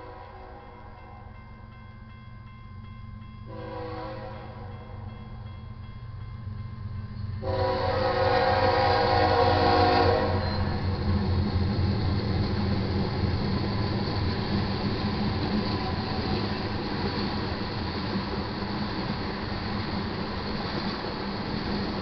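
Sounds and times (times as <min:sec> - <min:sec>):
freight train rumbling past: 0:00.0 - 0:22.0
locomotive air horn blast: 0:03.5 - 0:04.8, 0:07.4 - 0:10.9.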